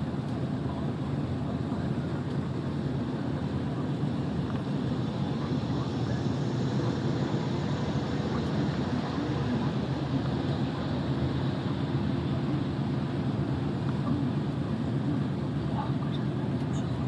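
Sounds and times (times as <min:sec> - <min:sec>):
road rumble: 0:01.2 - 0:16.8.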